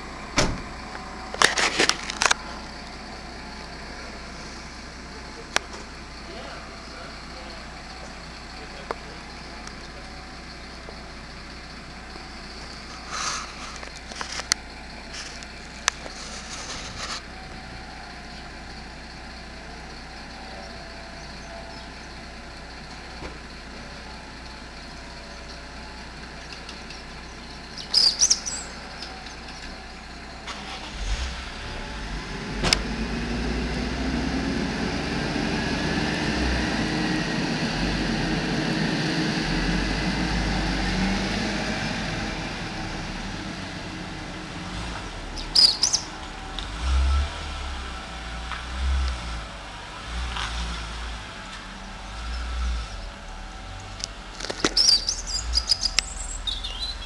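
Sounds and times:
motor vehicle engine running: 0.0s - 57.0s
street noise: 0.0s - 57.0s
short high squeaks: 45.4s - 46.0s, 54.6s - 57.0s.

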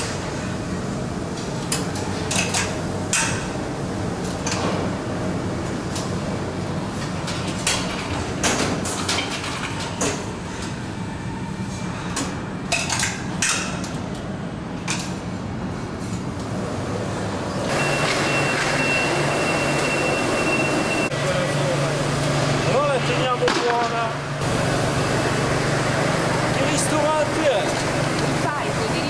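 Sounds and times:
electric forklift running: 16.4s - 29.0s.

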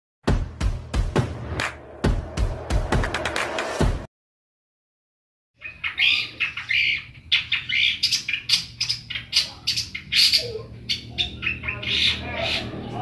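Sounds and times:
bird singing harsh notes: 5.6s - 13.0s.

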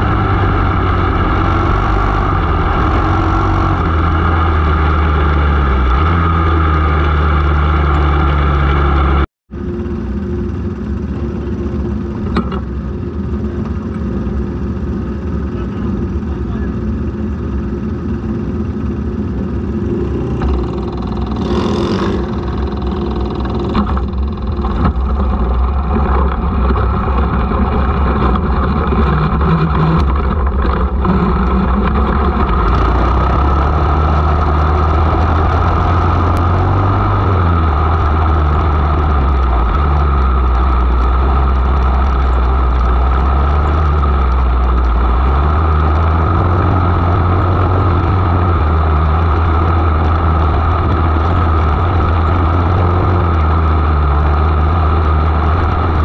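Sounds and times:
small race car engine: 18.8s - 56.0s.

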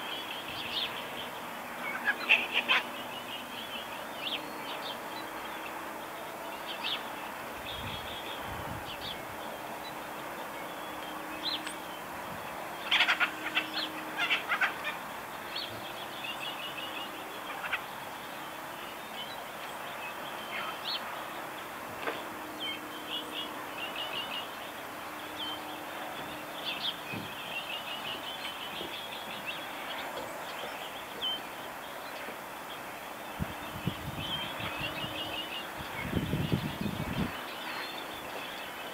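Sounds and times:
birds chirping and calling: 0.0s - 5.8s, 10.6s - 38.9s
steady background hiss: 0.0s - 38.9s.

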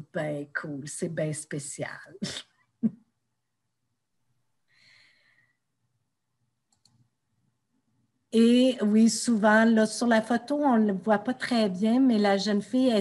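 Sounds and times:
faint exhale: 4.7s - 5.6s
faint clicks: 6.7s - 7.1s.

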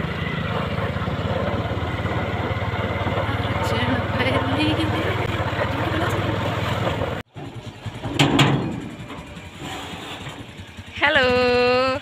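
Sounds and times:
motorbike engine and road noise: 0.0s - 12.0s
steel gate clanking: 7.4s - 10.7s.

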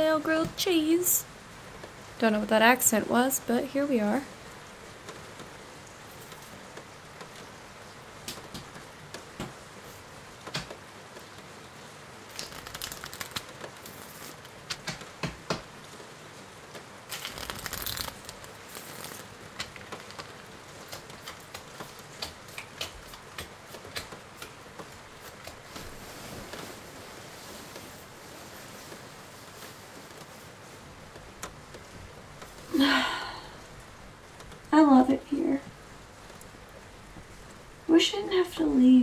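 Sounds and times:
steady background hiss: 0.0s - 39.0s
crinkling: 12.3s - 15.1s, 17.1s - 33.0s.

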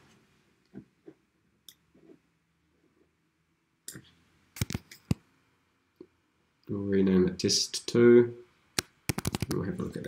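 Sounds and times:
keyboard keys clicking: 9.1s - 9.6s.

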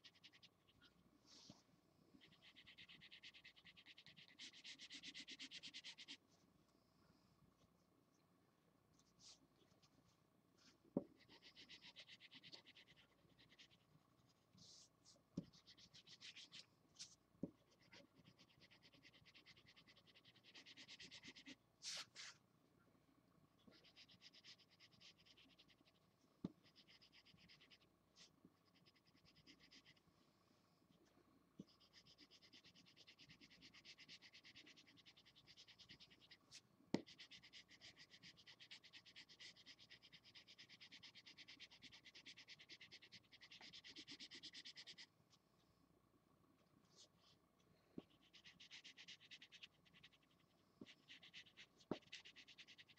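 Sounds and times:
marker scratching on paper: 2.2s - 6.2s, 10.6s - 22.4s, 23.7s - 30.0s, 31.6s - 45.1s, 48.0s - 52.9s.

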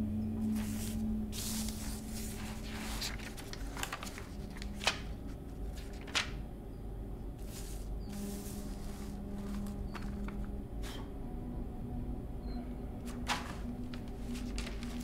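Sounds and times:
low steady hum: 0.0s - 15.0s
paper rustling and sliding: 0.4s - 6.4s, 7.4s - 11.1s, 13.1s - 15.0s.

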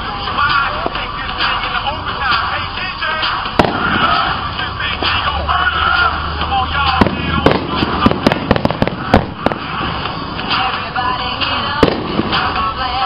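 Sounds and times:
music playing: 0.0s - 13.0s
fireworks bangs and crackles: 3.2s - 13.0s.

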